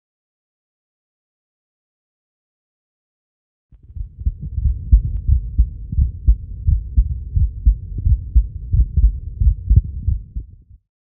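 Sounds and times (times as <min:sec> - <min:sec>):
muffled heartbeat thuds: 0:03.8 - 0:10.8.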